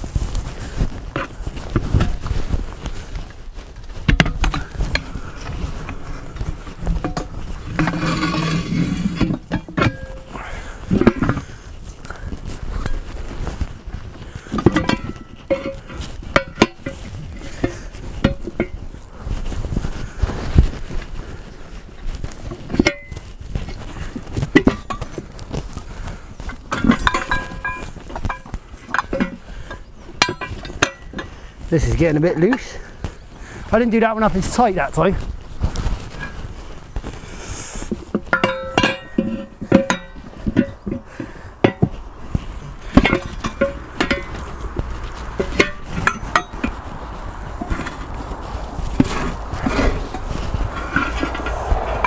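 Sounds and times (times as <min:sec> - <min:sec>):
tyre bar clanking on wheel rim: 0:01.1 - 0:18.8, 0:22.3 - 0:33.6, 0:37.8 - 0:52.0.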